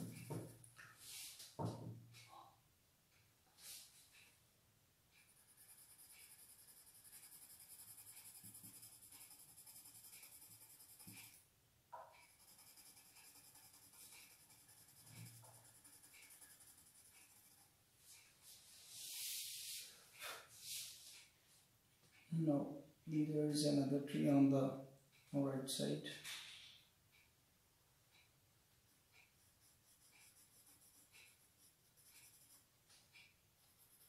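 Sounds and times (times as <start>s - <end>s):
pencil scratching on paper: 0.0s - 1.7s, 5.1s - 11.4s, 12.0s - 19.8s, 28.9s - 34.0s.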